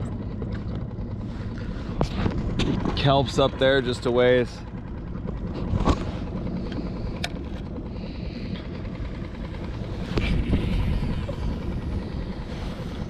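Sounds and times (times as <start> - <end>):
wind rumbling on microphone: 1.1 - 13.0.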